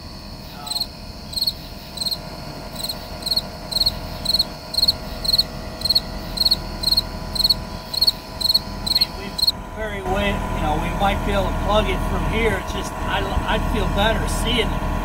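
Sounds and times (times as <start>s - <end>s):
cricket chirping: 0.0s - 9.6s
excavator engine idling: 0.0s - 15.0s.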